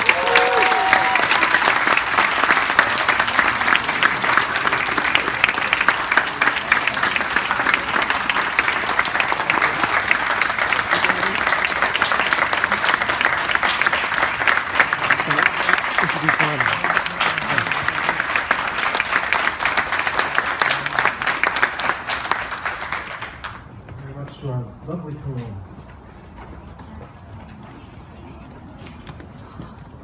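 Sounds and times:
audience clapping: 0.0s - 23.6s.

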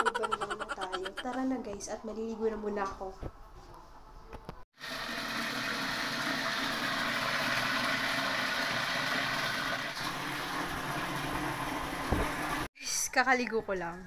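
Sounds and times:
tap water running into plastic pail: 4.8s - 12.7s.

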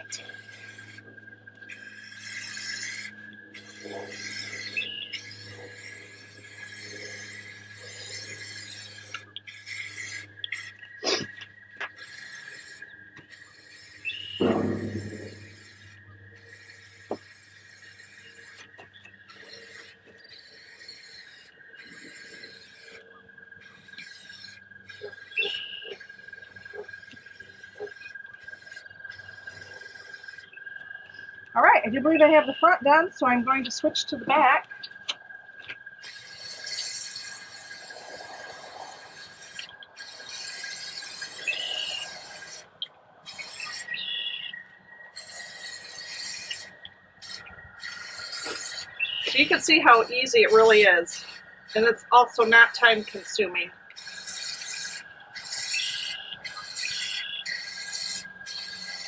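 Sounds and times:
aerosol spray can hissing: 0.0s - 1.0s, 1.7s - 23.0s, 36.1s - 44.2s, 45.2s - 59.0s.

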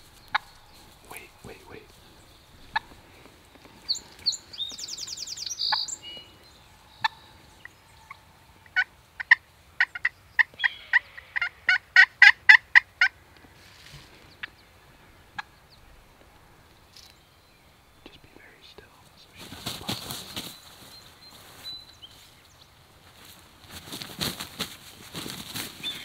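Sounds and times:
turkey clucks: 0.2s - 4.6s, 8.1s - 13.2s
turkey gobble: 8.1s - 13.1s.

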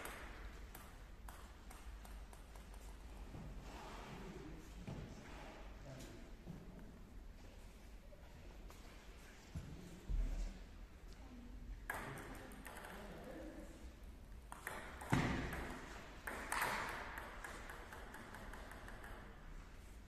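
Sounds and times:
table tennis ball clicking: 0.0s - 2.9s, 16.3s - 19.4s.

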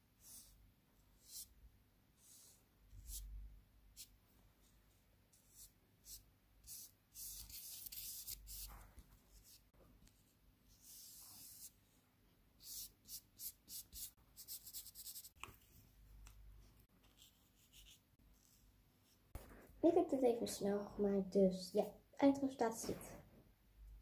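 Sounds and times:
paintbrush scratching on paper: 0.2s - 4.7s, 5.3s - 12.0s, 12.6s - 15.4s, 17.0s - 19.2s.

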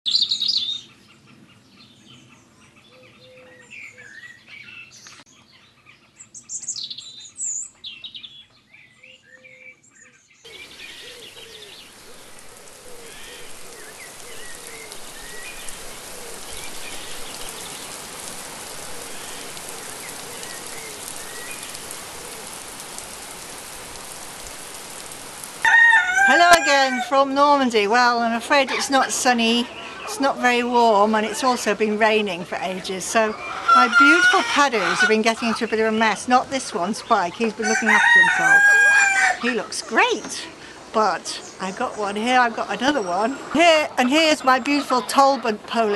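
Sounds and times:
small birds chirping: 0.1s - 45.9s
steady rain: 10.5s - 45.9s.

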